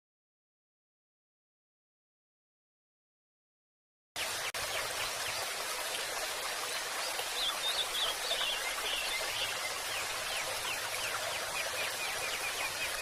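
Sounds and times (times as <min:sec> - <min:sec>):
running water hissing: 0:04.2 - 0:13.0
small birds chirping: 0:06.6 - 0:13.0.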